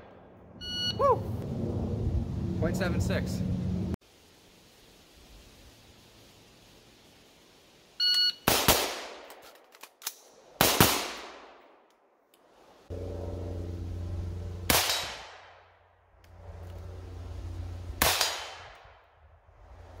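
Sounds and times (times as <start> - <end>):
low hum: 0.0 - 4.0, 12.6 - 20.0
short beep: 0.6 - 1.0, 8.0 - 8.4
rifle shots: 8.4 - 9.3, 10.6 - 11.6, 14.7 - 15.6, 18.0 - 18.9.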